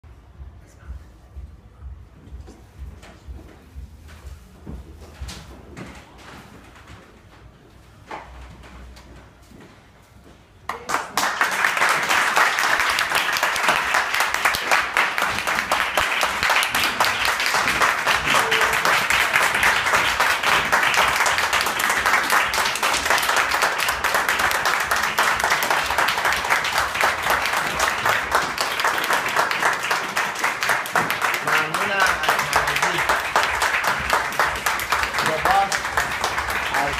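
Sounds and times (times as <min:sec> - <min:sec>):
audience applauding: 0:10.7 - 0:36.9.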